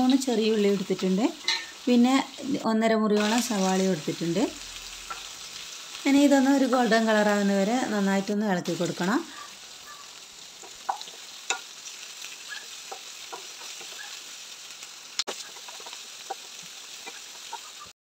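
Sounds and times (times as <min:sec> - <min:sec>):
onions sizzling in hot oil: 0:00.0 - 0:18.0
spatula scraping and tapping pan: 0:01.4 - 0:01.8, 0:10.6 - 0:11.7, 0:12.5 - 0:14.2.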